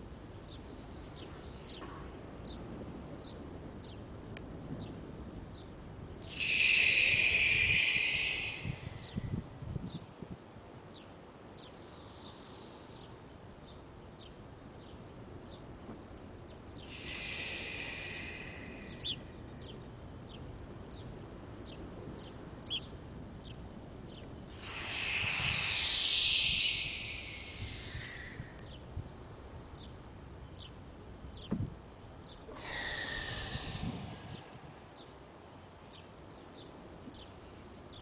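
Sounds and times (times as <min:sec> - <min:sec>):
bird chirping: 0:04.8 - 0:10.1, 0:16.4 - 0:28.9, 0:32.2 - 0:38.0
rushing noise: 0:06.2 - 0:09.6, 0:24.5 - 0:28.6.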